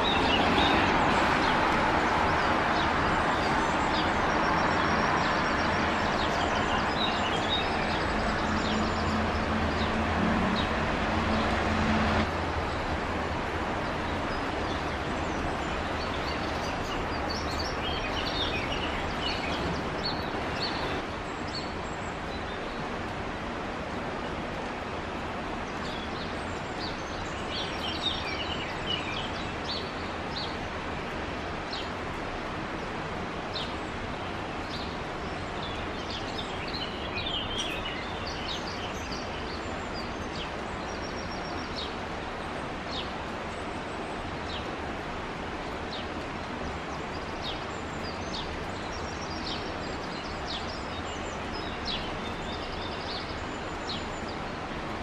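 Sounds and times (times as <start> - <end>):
rushing background noise: 0.0 - 55.0.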